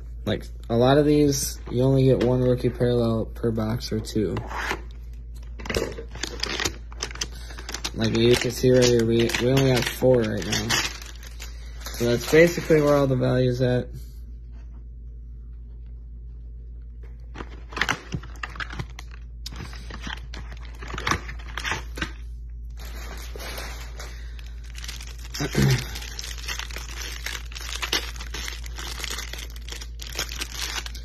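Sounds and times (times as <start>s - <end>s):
plastic wrapping crinkling and tearing: 5.4s - 13.2s, 17.3s - 31.0s.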